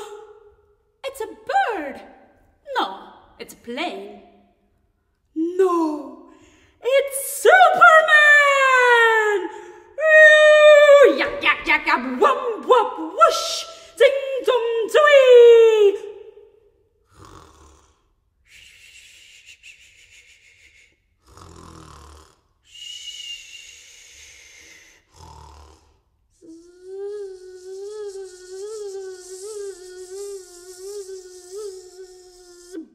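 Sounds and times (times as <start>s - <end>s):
person imitating snoring: 17.1s - 18.1s, 21.2s - 22.6s, 24.2s - 32.9s.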